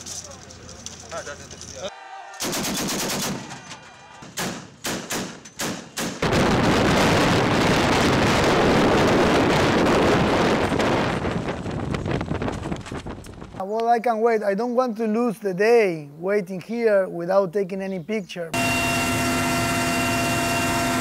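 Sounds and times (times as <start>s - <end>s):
automatic gunfire: 2.4s - 3.5s.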